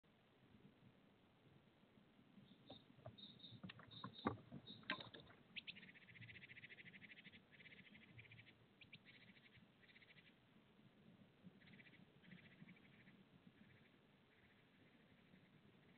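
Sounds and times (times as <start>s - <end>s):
owl scraping and tapping on wood: 2.7s - 5.3s.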